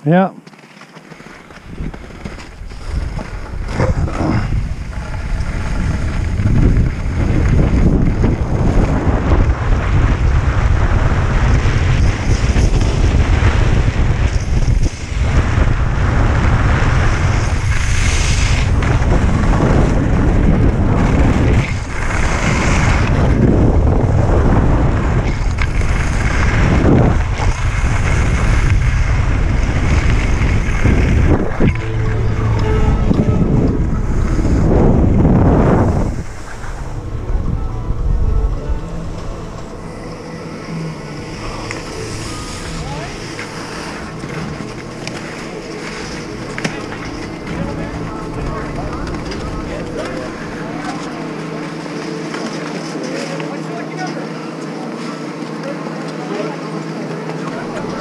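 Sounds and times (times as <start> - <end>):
skis scraping on snow: 0.4 - 58.0
wind buffeting microphone: 1.6 - 52.3.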